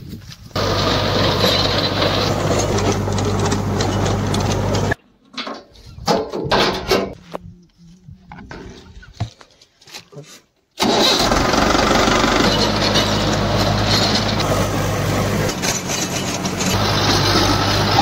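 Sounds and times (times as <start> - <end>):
tractor engine hum: 0.5 - 5.0, 10.8 - 18.0
rotavator blades churning: 0.6 - 5.0, 10.8 - 18.0.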